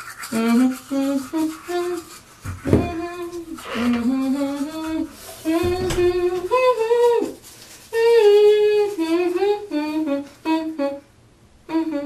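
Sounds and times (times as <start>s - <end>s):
woman humming: 0.3s - 7.4s, 8.0s - 11.1s, 11.7s - 12.0s
short thump: 5.5s - 6.5s.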